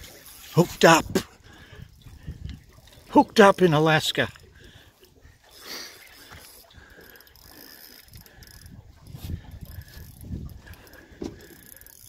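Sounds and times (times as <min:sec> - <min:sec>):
fishing reel clicking: 0:05.5 - 0:12.0.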